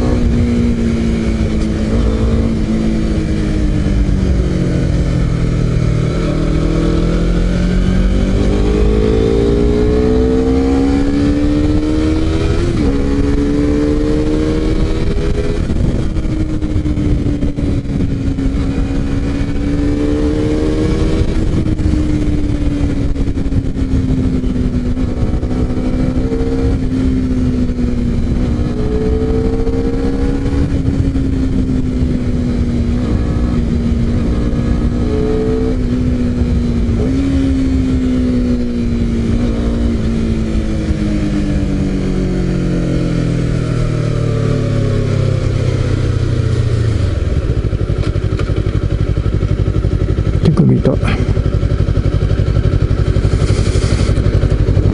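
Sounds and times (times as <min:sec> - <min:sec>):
wind rushing: 0:00.0 - 0:27.4
motorcycle engine revving: 0:00.0 - 0:54.9.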